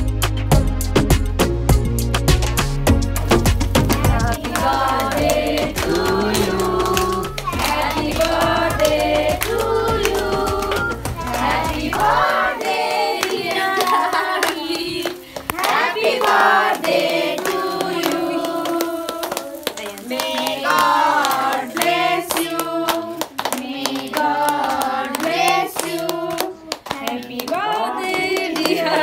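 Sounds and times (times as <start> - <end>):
hand-clapping: 2.2 - 29.0
group of people singing: 3.7 - 29.0.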